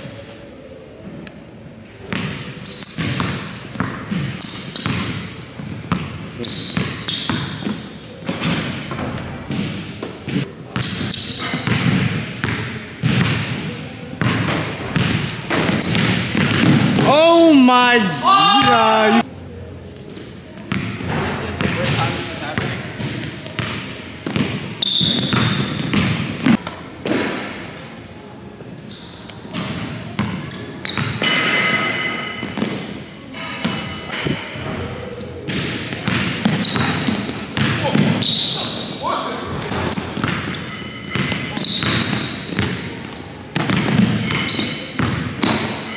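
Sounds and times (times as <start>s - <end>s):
basketball bouncing on gym floor: 2.1s - 17.1s, 20.7s - 27.4s, 35.5s - 38.2s, 43.6s - 45.8s.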